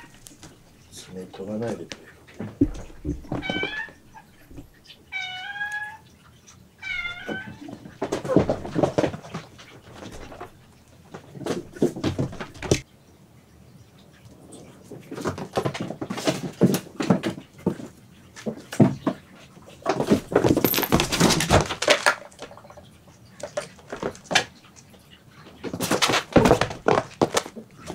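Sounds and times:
cat meowing: 5.1s - 6.1s, 6.8s - 7.8s.

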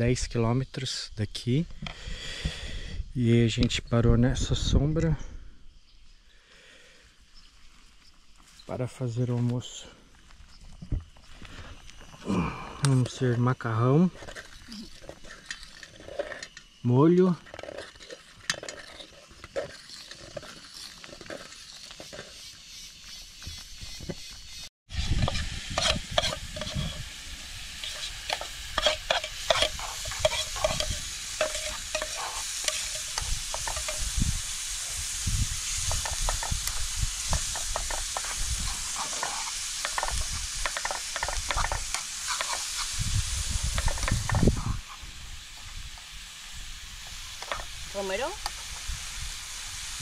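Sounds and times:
utensil scraping and clinking on pan: 17.4s - 22.5s, 25.0s - 34.6s, 35.8s - 42.9s
carrots sizzling in a pan: 19.0s - 50.0s.

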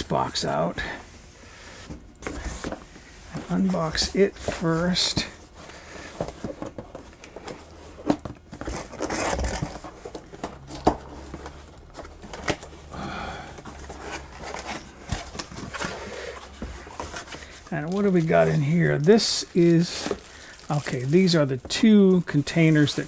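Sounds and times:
cardboard scraping and rustling: 6.1s - 12.7s, 13.7s - 23.0s.

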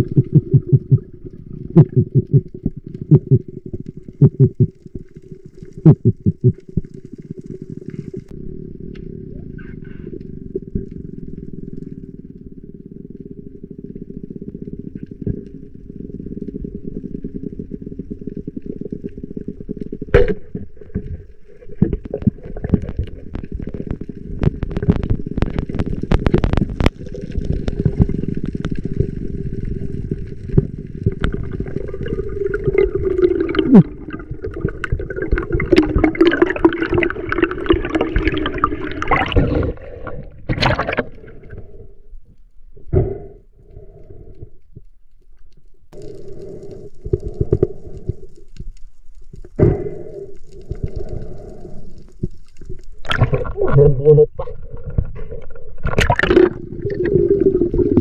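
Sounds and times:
splashing and bubbling: 0.0s - 8.3s, 18.6s - 41.7s, 50.6s - 58.0s
water gurgling: 0.0s - 8.4s, 9.2s - 41.8s, 49.4s - 58.0s
dull underwater rumble: 0.0s - 58.0s.

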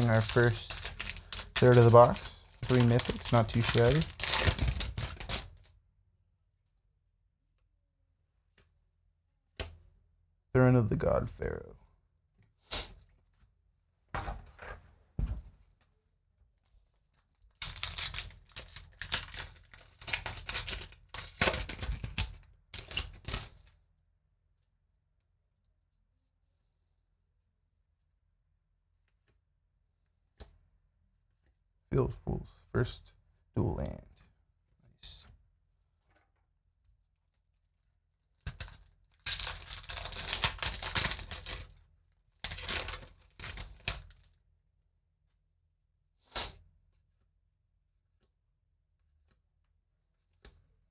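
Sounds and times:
foil wrapper tearing and crinkling: 0.0s - 5.6s, 17.5s - 23.7s, 38.4s - 44.3s.

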